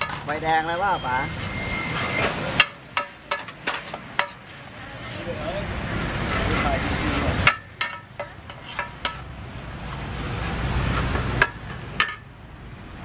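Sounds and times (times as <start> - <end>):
metal spatulas scraping a wok: 0.0 - 5.2, 6.1 - 9.4
passing traffic: 0.0 - 13.0.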